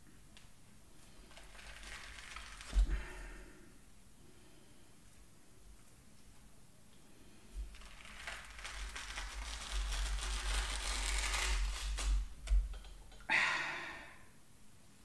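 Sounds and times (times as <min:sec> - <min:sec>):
tea towels rustling: 0:00.9 - 0:03.5, 0:07.5 - 0:12.7.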